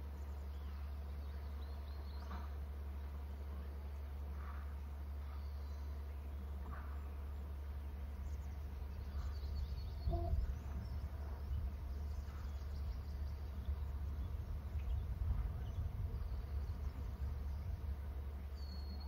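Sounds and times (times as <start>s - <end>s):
low outdoor rumble: 0.0s - 19.0s
faint bird chirps: 8.2s - 17.8s, 18.5s - 19.0s.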